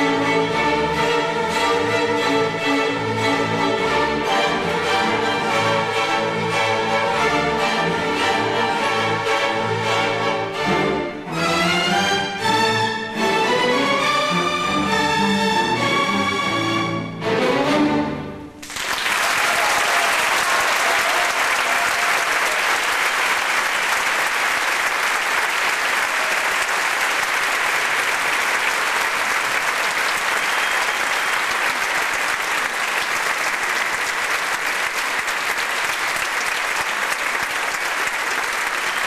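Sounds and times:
audience applauding: 18.6s - 39.0s.

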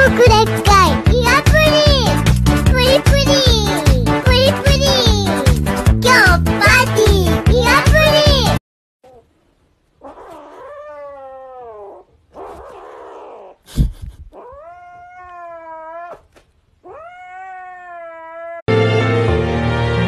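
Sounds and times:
kitten meowing: 14.3s - 18.6s.

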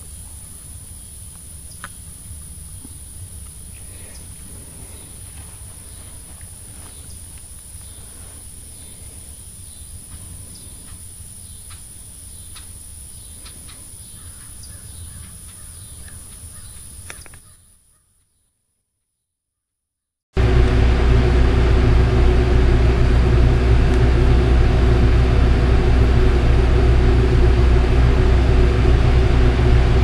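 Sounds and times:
low rumble: 20.4s - 30.0s.

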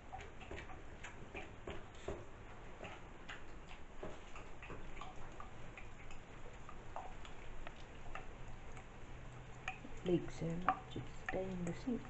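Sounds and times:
light clicks and ticks: 0.0s - 12.0s.

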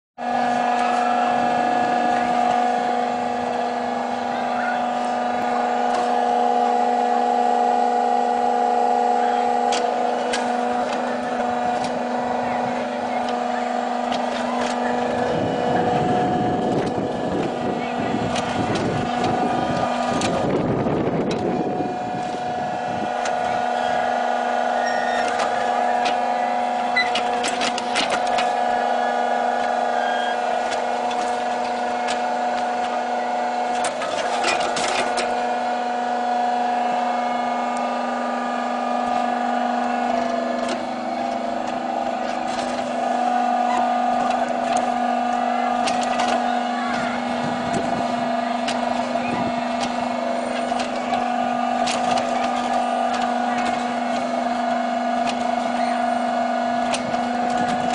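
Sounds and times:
hydraulic pump humming: 0.2s - 57.9s.

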